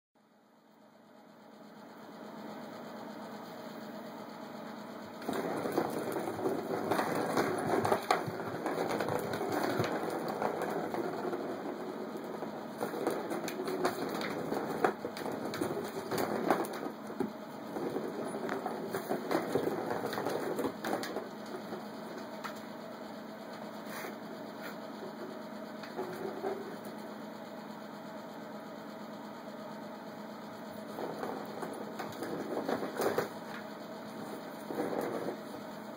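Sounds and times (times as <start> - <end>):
plastic ball rattling around track: 5.2 - 22.6, 25.8 - 26.9, 30.8 - 35.6.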